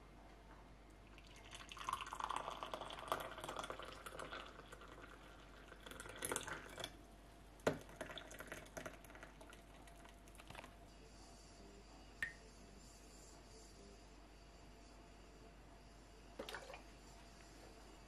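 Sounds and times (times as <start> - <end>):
tea pouring into glass: 1.1 - 7.0, 7.6 - 10.7, 16.4 - 16.8.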